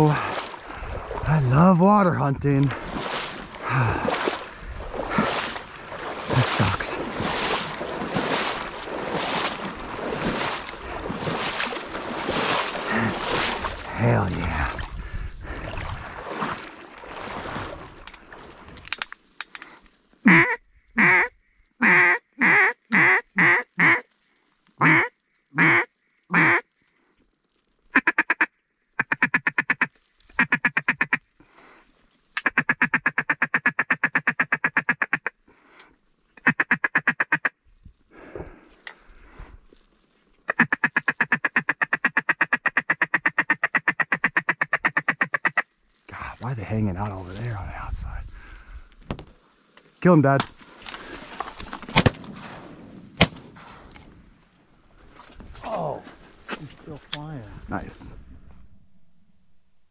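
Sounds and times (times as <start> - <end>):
water sloshing: 0.0 - 20.2, 49.0 - 58.7
duck call quacks: 20.2 - 24.1, 24.8 - 26.7, 27.9 - 31.2, 32.4 - 35.4, 36.4 - 37.5, 40.5 - 45.6.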